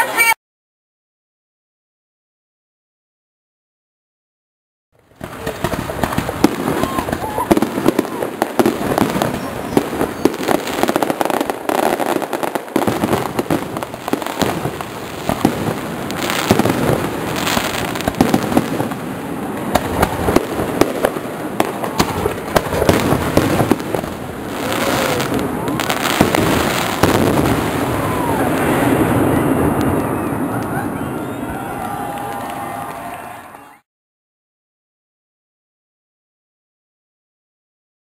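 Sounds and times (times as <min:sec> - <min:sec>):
fireworks bangs and crackles: 0:05.0 - 0:33.1.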